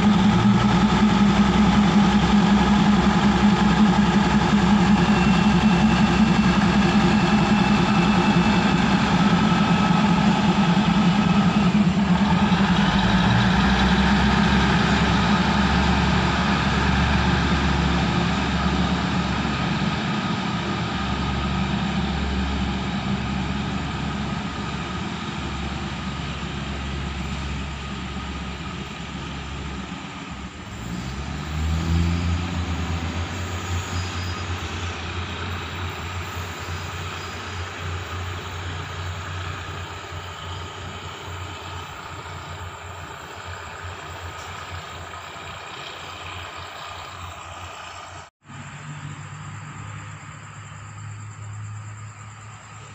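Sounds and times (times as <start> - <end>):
deeper engine note: 0.0 - 52.9
train diesel engines droning: 0.0 - 52.9.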